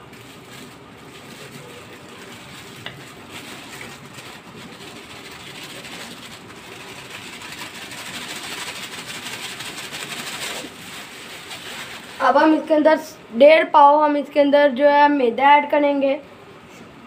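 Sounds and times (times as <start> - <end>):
flour pouring into bowl: 0.0 - 12.3.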